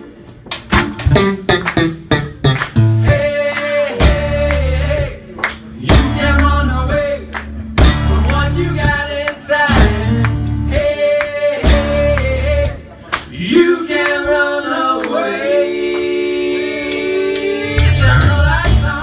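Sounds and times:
rock band playing: 0.6 - 12.8, 17.8 - 19.0
men singing together: 2.9 - 19.0.

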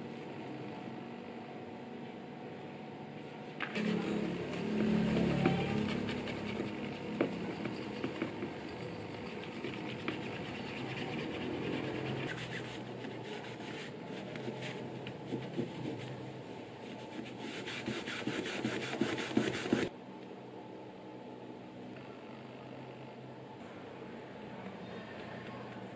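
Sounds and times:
abrasive pad scraping leather: 9.2 - 16.2, 16.8 - 19.9.

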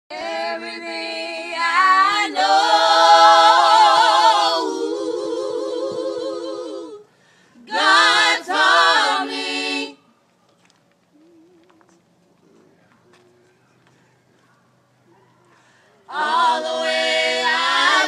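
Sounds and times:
voices singing a cappella: 0.1 - 10.1, 16.0 - 18.0.

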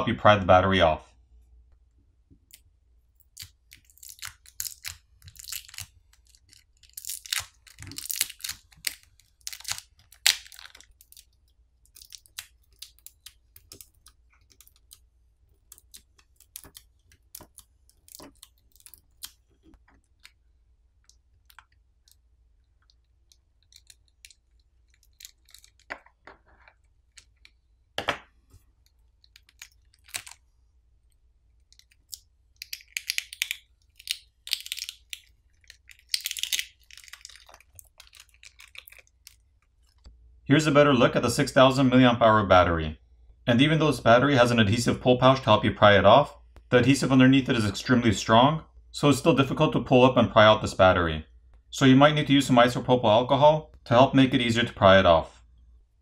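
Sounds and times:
battery adhesive crackling and tearing: 3.2 - 15.0, 31.6 - 39.4.

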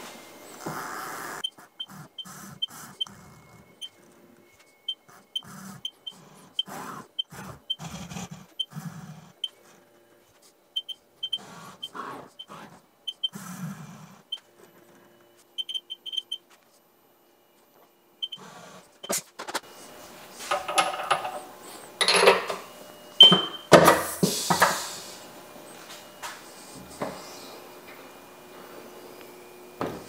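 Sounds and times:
short high keypad beeps: 15.6 - 16.4, 23.2 - 23.7.

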